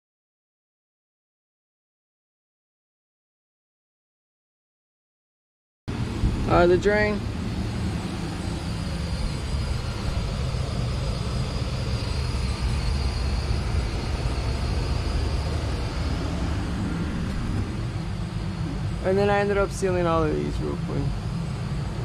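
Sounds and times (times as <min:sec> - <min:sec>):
faint high whine: 0:05.9 - 0:22.0
furnace blower rumble and hiss: 0:05.9 - 0:22.0.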